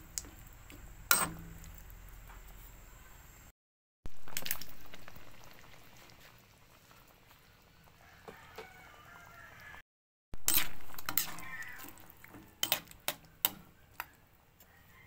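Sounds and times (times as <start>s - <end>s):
stew bubbling: 4.1s - 8.1s.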